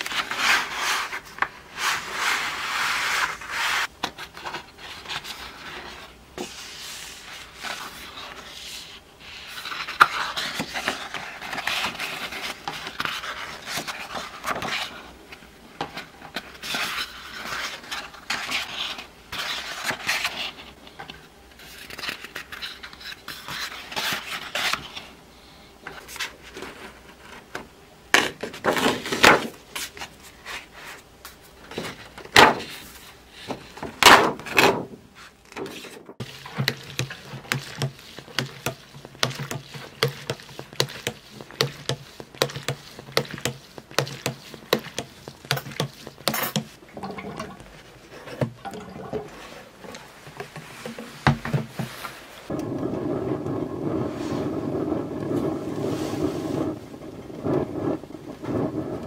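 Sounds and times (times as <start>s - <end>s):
calendar pages rustling: 0.0s - 20.7s, 21.6s - 25.1s, 25.9s - 48.6s, 49.3s - 52.6s
paper sheets flapping: 31.7s - 46.8s.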